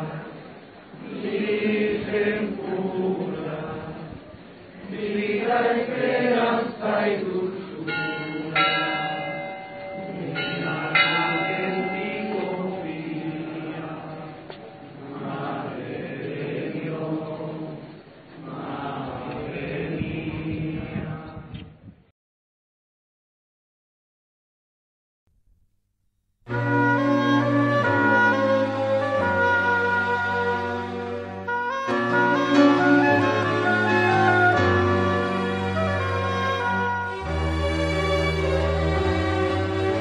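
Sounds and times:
group singing: 0:00.0 - 0:08.6, 0:10.0 - 0:21.5, 0:32.0 - 0:36.8
church bells ringing: 0:07.7 - 0:15.0, 0:26.5 - 0:40.0.

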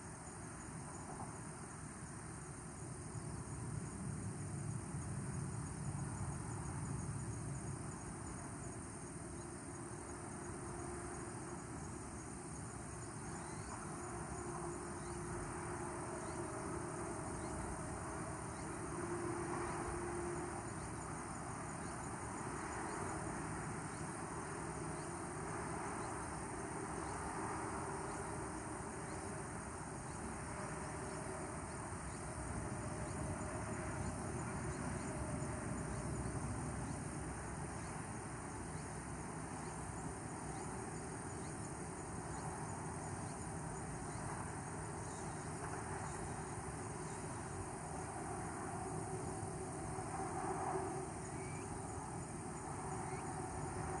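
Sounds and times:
insects trilling: 0:00.0 - 0:54.0
fast pulsing insect chirps: 0:51.2 - 0:51.7, 0:53.0 - 0:53.3.

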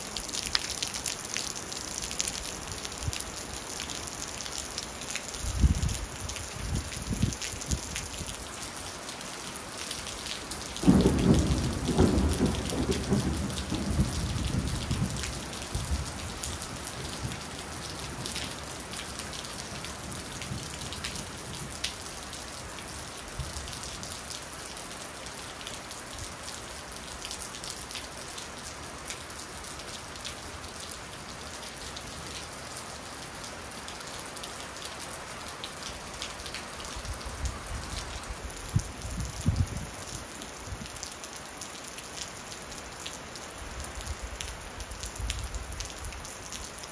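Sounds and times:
steady rain falling: 0:00.0 - 0:46.9
thunder rumbling: 0:10.8 - 0:17.4.

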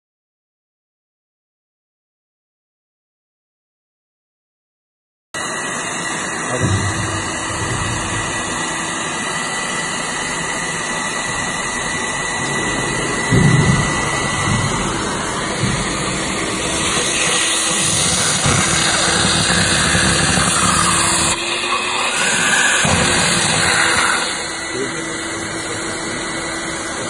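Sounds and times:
suction machine rushing hiss: 0:05.4 - 0:27.0
low thump: 0:06.5 - 0:08.9, 0:12.1 - 0:17.4.

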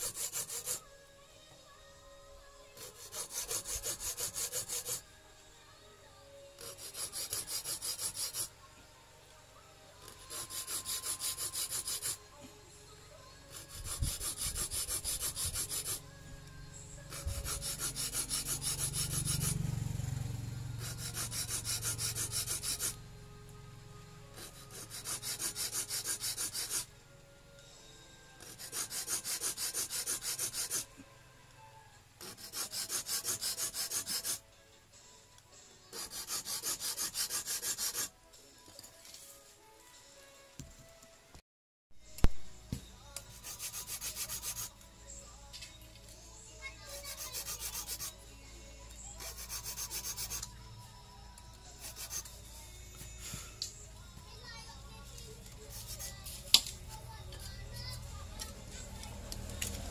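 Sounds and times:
hand file rasping on steel: 0:00.0 - 0:00.9, 0:02.8 - 0:05.1, 0:06.6 - 0:08.6, 0:10.0 - 0:12.3, 0:13.5 - 0:16.0, 0:17.1 - 0:19.8, 0:20.8 - 0:23.0, 0:24.3 - 0:26.9, 0:28.4 - 0:30.9, 0:32.2 - 0:34.4, 0:35.9 - 0:38.1, 0:43.2 - 0:44.8, 0:46.8 - 0:48.2, 0:49.1 - 0:50.5, 0:51.8 - 0:52.4, 0:55.6 - 0:56.7.

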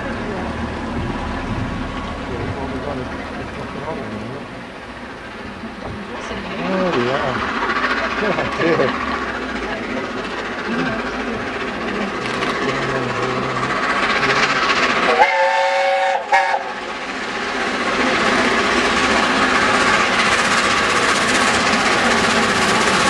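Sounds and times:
running train: 0:00.0 - 0:23.0
steam locomotive whistle: 0:15.0 - 0:16.8.

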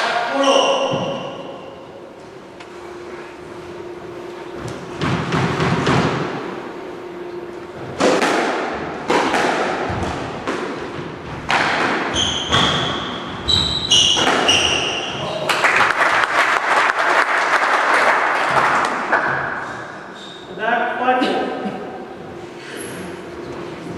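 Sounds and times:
squash ball cracking off rackets: 0:07.9 - 0:12.9
shoes squeaking on wooden floor: 0:12.1 - 0:15.1
crowd clapping: 0:15.3 - 0:19.5.

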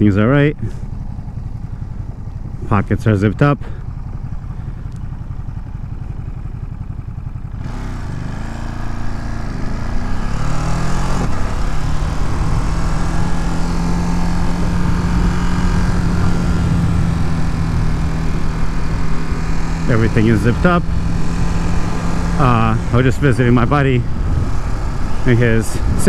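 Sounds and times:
motorcycle engine idling and accelerating: 0:00.0 - 0:26.0
wind noise on microphone: 0:11.1 - 0:19.7, 0:20.9 - 0:26.0.

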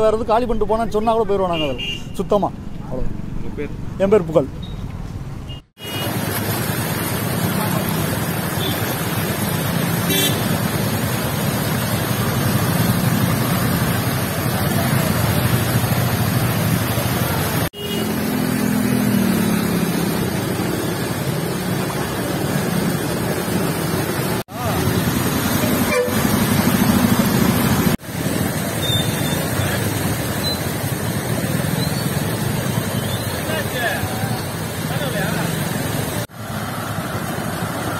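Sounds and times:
traffic: 0:00.0 - 0:37.9
car horn: 0:01.5 - 0:02.2, 0:05.5 - 0:06.1, 0:10.1 - 0:10.5, 0:17.7 - 0:18.2, 0:25.6 - 0:26.4
engine: 0:04.6 - 0:37.9
floodwater rushing: 0:05.8 - 0:37.9.

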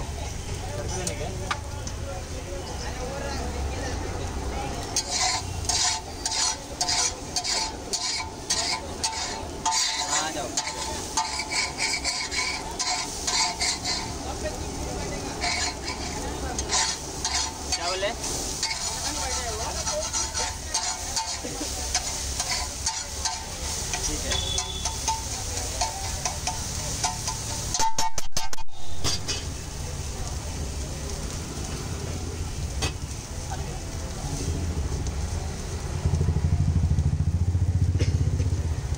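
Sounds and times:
food sizzling: 0:00.0 - 0:38.9
metal spatula scraping griddle: 0:04.8 - 0:29.7.

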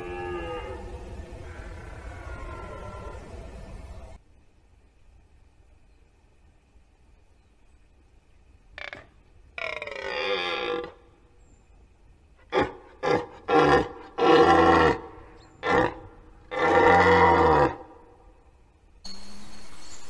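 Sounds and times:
red deer stag roaring: 0:00.0 - 0:03.4, 0:09.6 - 0:11.0, 0:12.5 - 0:18.0.

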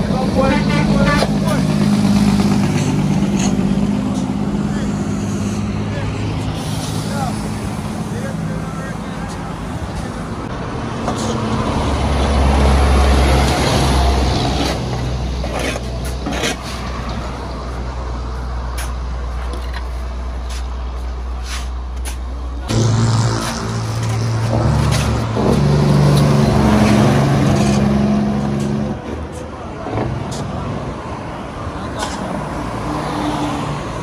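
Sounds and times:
diesel truck engine under load: 0:00.0 - 0:32.9.

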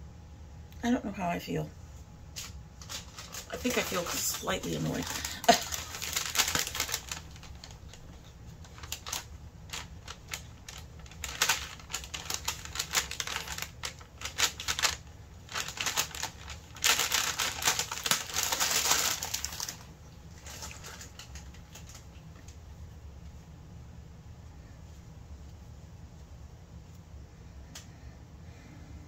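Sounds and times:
paper crinkling: 0:02.3 - 0:22.6.

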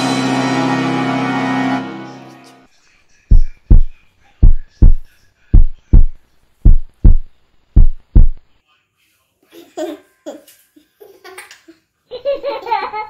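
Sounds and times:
orchestral music: 0:00.0 - 0:02.7
heartbeat thumps: 0:03.3 - 0:08.4.

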